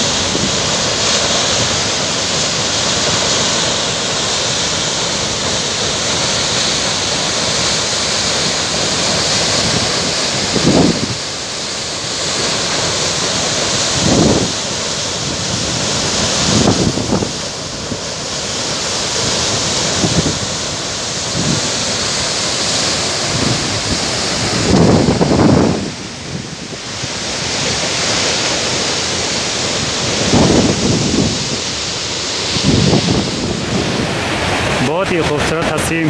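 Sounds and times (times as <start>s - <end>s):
stream water rushing: 0.0s - 36.0s
wind buffeting microphone: 9.5s - 11.3s, 13.8s - 18.1s, 19.8s - 22.0s, 22.8s - 27.9s, 29.6s - 35.2s.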